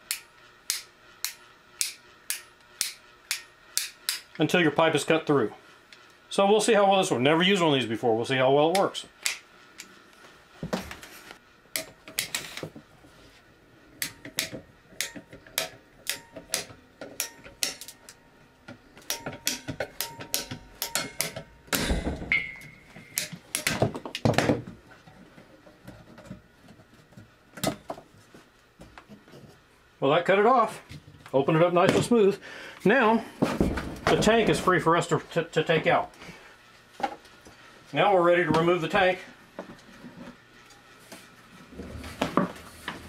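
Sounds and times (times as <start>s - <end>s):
ratcheting pipe cutter clicking: 0.1s - 4.3s.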